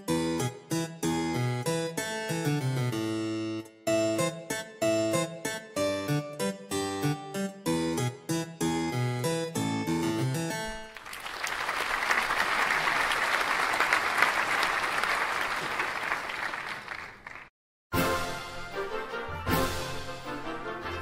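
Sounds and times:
audience applauding: 0:10.8 - 0:17.5.

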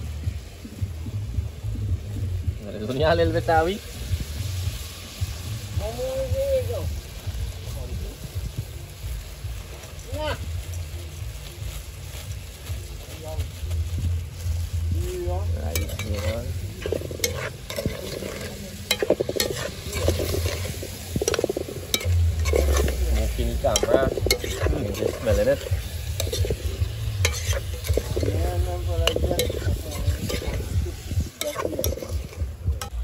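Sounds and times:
low steady rumble: 0:00.0 - 0:09.7, 0:10.4 - 0:33.0
chicken sizzling in oil: 0:00.0 - 0:33.0
metal spoon scraping pot: 0:15.7 - 0:33.0.

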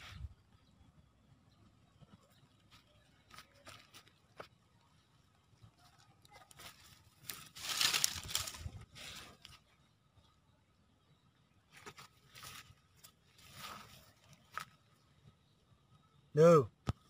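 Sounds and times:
dry leaves rustling and crackling: 0:05.8 - 0:09.6, 0:11.8 - 0:14.7.

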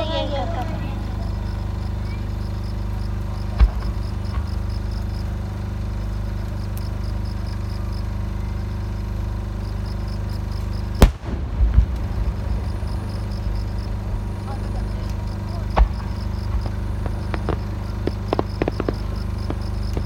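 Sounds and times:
low background noise: 0:00.0 - 0:20.0
low rumbling echo: 0:10.9 - 0:20.0
firework shell bang: 0:11.0 - 0:20.0.

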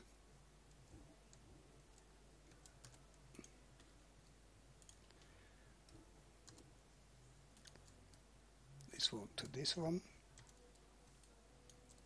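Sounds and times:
low room hum: 0:00.0 - 0:12.0
computer mouse clicks: 0:00.7 - 0:06.7, 0:07.5 - 0:08.2, 0:10.4 - 0:12.0.

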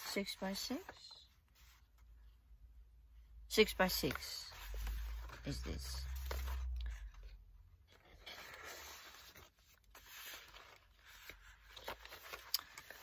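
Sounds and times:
paper rustling and sliding: 0:04.0 - 0:07.3, 0:07.9 - 0:13.0.

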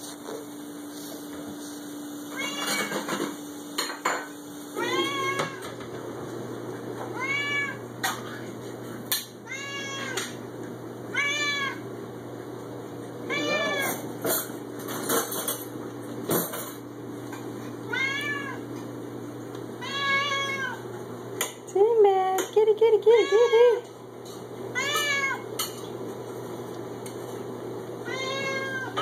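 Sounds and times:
cat meowing loudly: 0:02.3 - 0:03.1, 0:04.8 - 0:05.7, 0:07.1 - 0:07.8, 0:09.4 - 0:10.4, 0:11.1 - 0:11.8, 0:13.2 - 0:14.0, 0:17.9 - 0:18.6, 0:19.8 - 0:20.8, 0:24.7 - 0:25.5, 0:28.0 - 0:29.0.

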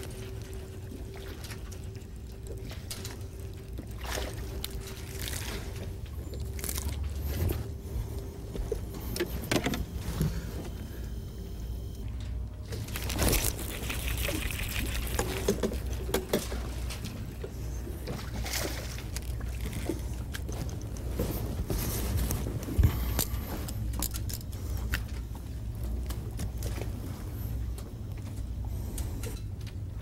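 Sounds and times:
water splashing and trickling: 0:00.0 - 0:08.2, 0:12.6 - 0:25.2
boat motor hum: 0:00.0 - 0:30.0.

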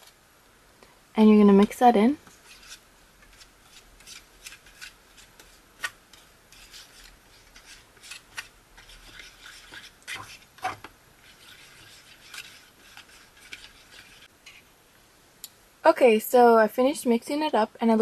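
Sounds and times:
plastic fork scraping a tray: 0:02.5 - 0:14.3.

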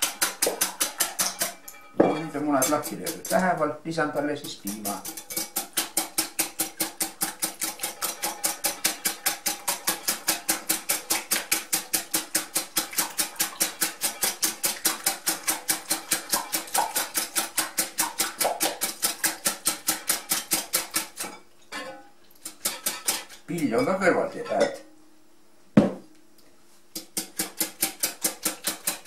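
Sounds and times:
whisk beating in a glass bowl: 0:00.0 - 0:03.7, 0:04.4 - 0:21.4, 0:27.1 - 0:29.0.

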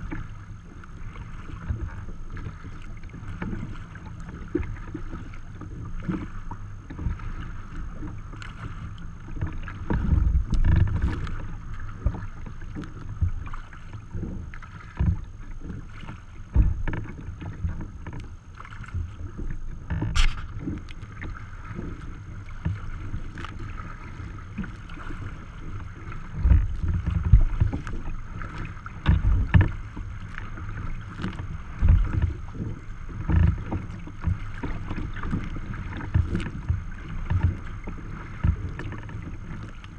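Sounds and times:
water slapping against kayak hull: 0:00.0 - 0:39.9.

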